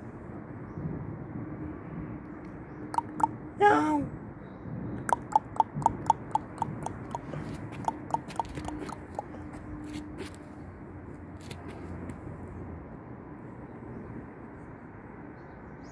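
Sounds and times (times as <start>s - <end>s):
faint outdoor background: 0.0s - 15.9s
tongue clicks: 3.0s - 3.4s, 5.0s - 9.6s.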